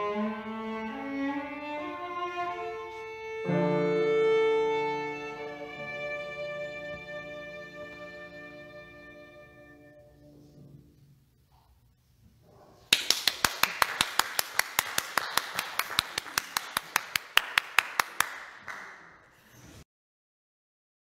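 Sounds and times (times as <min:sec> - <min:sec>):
cello and piano note: 0:00.0 - 0:11.1
person clapping: 0:12.9 - 0:19.2.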